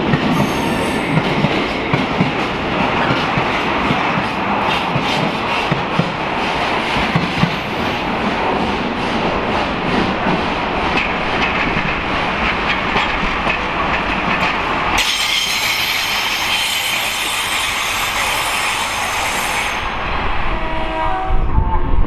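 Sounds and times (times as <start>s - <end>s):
train wheels clicking over rail joints: 0.0s - 19.5s
wheels squealing on curved rails: 15.0s - 20.0s.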